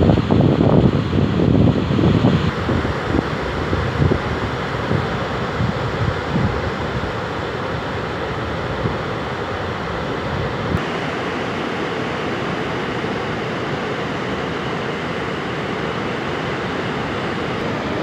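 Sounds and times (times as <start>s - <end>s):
wind buffeting microphone: 0.0s - 10.8s.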